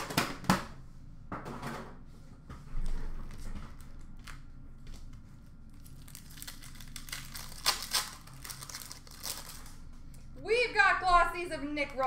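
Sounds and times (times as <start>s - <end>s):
wrapper crinkling and tearing: 5.7s - 9.9s.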